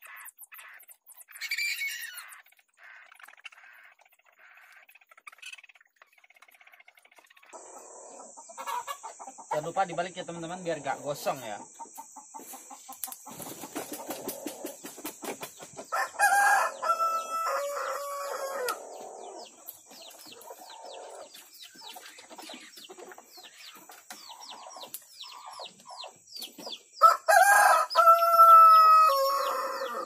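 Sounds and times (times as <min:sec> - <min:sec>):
rooster crowing: 0:15.9 - 0:19.4, 0:27.0 - 0:30.0.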